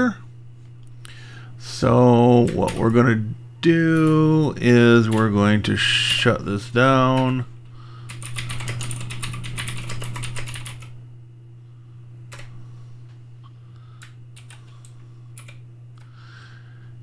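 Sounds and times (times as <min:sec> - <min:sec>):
typing on a computer keyboard: 0:08.1 - 0:10.9, 0:14.0 - 0:15.6.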